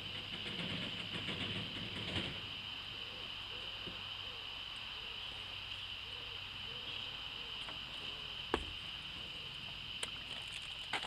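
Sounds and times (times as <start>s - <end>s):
high-pitched hiss: 0.0s - 11.0s.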